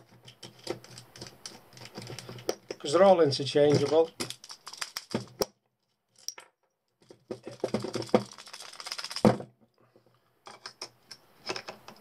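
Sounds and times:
metal items clinking: 6.1 - 6.6, 7.3 - 9.4.

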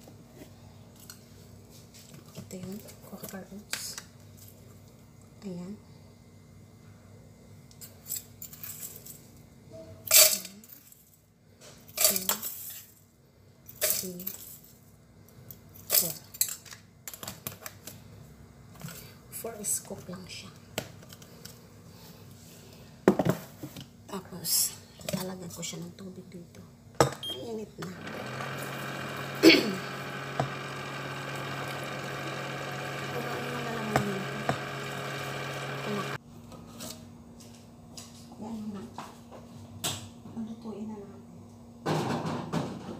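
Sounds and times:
kitchen appliance humming: 27.8 - 36.2.

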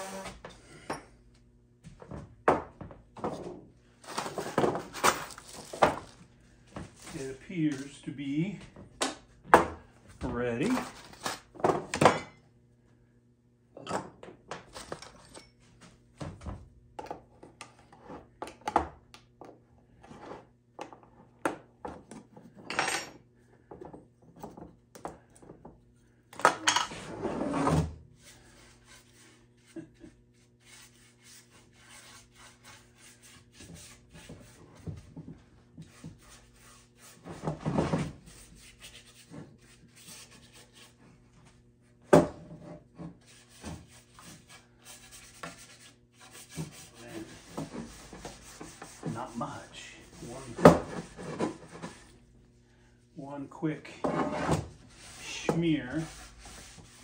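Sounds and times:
cloth rubbing on wood: 43.9 - 52.2, 54.2 - 57.0.

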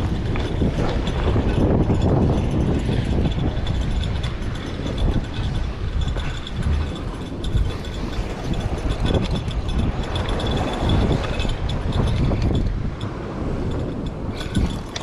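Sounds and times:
fishing reel clicking: 0.0 - 15.0
wind buffeting microphone: 0.0 - 15.0.

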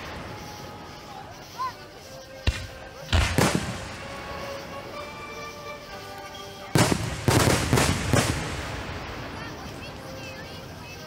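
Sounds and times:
firework booms: 2.4 - 4.1, 6.7 - 9.6.

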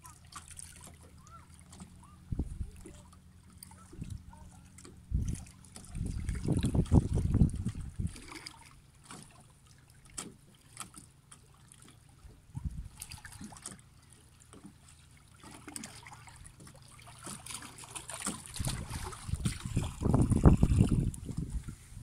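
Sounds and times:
small waves lapping: 0.0 - 22.0
wind buffeting microphone: 2.2 - 2.9, 5.0 - 8.3, 12.5 - 13.0, 18.5 - 22.0.

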